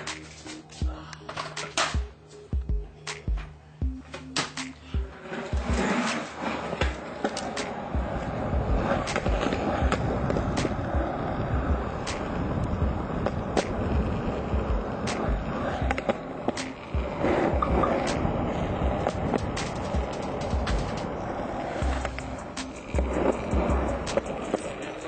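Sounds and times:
steady rumbling: 5.0s - 25.0s.

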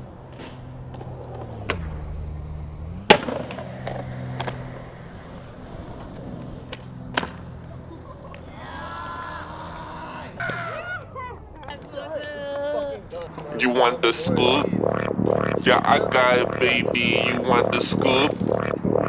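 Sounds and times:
skateboard wheels rolling: 0.0s - 13.6s
skateboard clacks: 3.0s - 8.6s.

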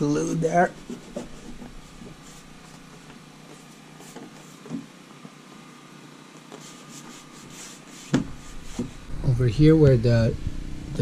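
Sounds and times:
soft bump: 8.1s - 9.0s.

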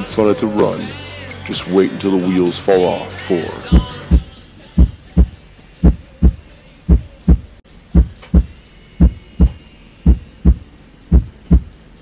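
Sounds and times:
heartbeat double thumps: 3.7s - 11.8s.

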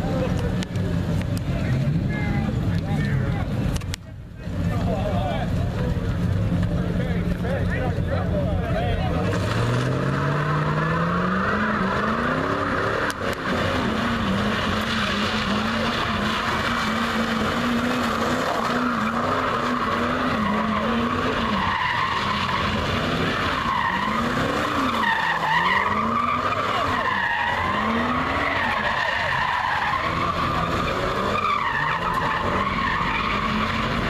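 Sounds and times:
car engine revving: 0.0s - 34.0s
tyres squealing: 9.2s - 34.0s.

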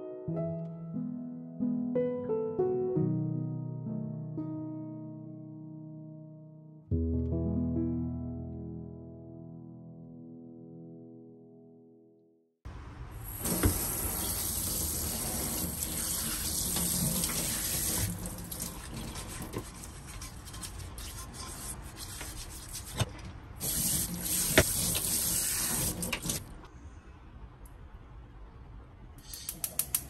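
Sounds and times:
tap running into a metal sink: 13.5s - 13.9s
sponge scrubbing a pan: 14.8s - 26.2s.

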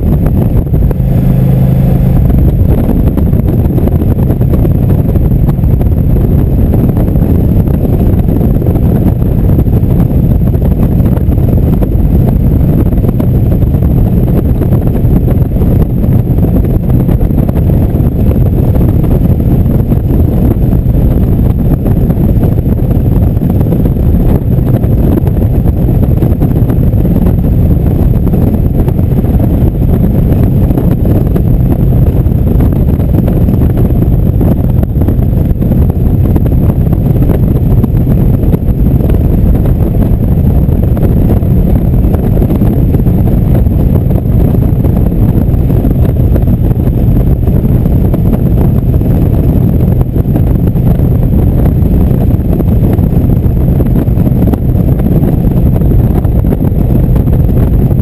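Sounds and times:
motorcycle engine cruising: 0.0s - 57.9s
wind rushing over microphone: 0.0s - 58.0s.

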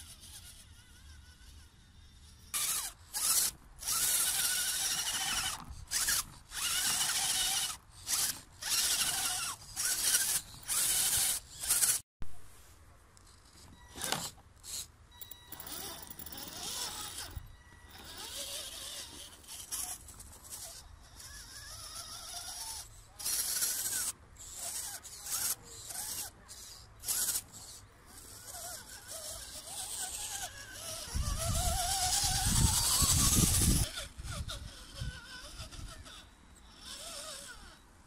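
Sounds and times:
rc car motor whine: 0.0s - 12.0s, 13.3s - 37.9s.

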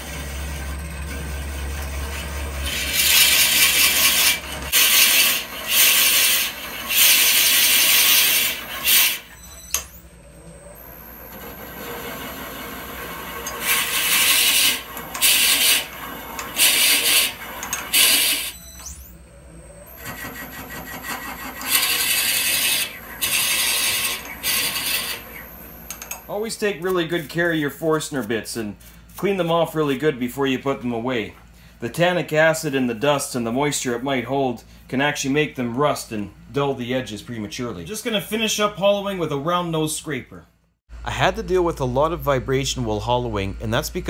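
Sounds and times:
wood lathe running: 0.0s - 9.4s, 10.8s - 18.5s, 20.0s - 26.2s
drill bit rasping into wood: 2.6s - 9.3s, 13.5s - 18.6s, 20.5s - 25.4s.

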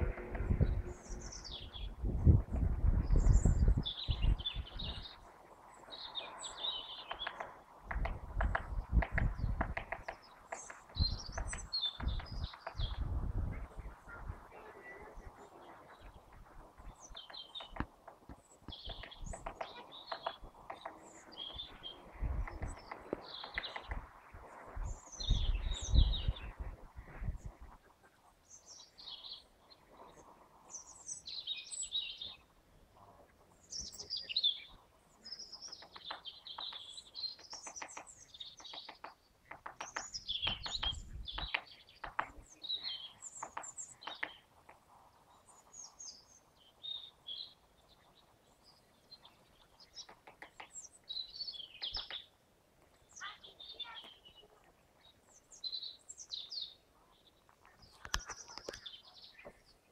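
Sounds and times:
low rumble: 0.0s - 3.5s
songbirds chirping: 0.0s - 59.9s
woodpecker tapping on bark: 7.0s - 13.1s, 17.0s - 21.6s, 22.2s - 24.1s, 35.6s - 44.9s, 49.8s - 51.0s, 51.6s - 53.4s.

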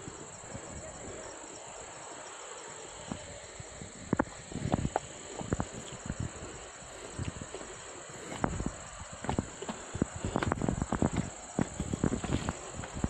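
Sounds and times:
high-pitched insect chorus: 0.0s - 13.0s
footsteps on loose stones: 4.2s - 13.0s.

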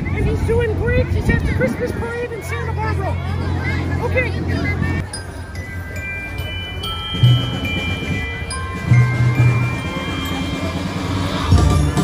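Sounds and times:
music with bass and high notes: 5.1s - 12.0s.

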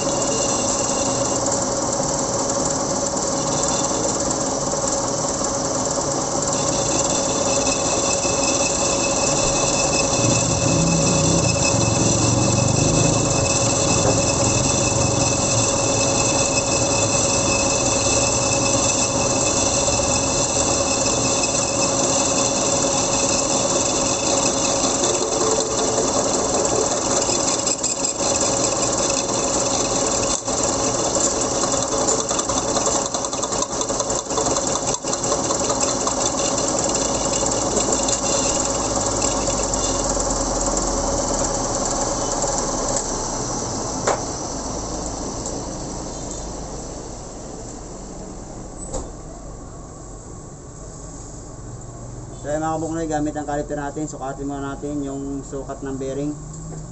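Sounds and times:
metal lathe humming and whining: 0.0s - 48.7s
rattling cutting tool: 6.2s - 42.0s.

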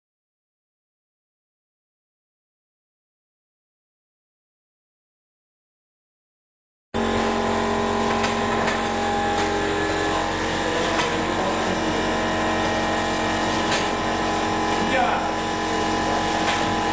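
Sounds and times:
induction heater humming: 7.0s - 16.9s.

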